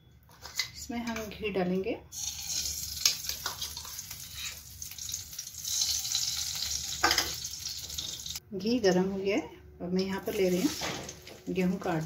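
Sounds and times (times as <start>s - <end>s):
ghee sizzling in a pan: 2.1s - 8.4s.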